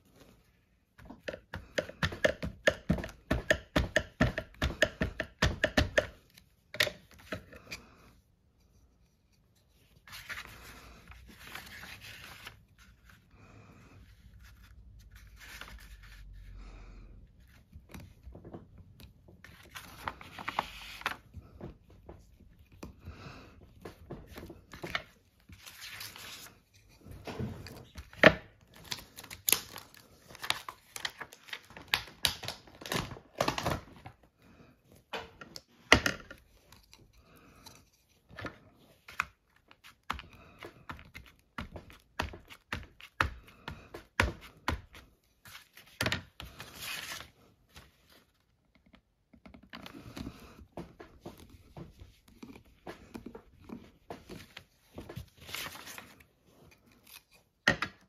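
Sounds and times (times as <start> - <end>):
paper rustling: 9.1 - 13.4, 14.1 - 16.5, 19.0 - 23.0, 23.7 - 34.2, 36.3 - 48.6, 49.8 - 57.6.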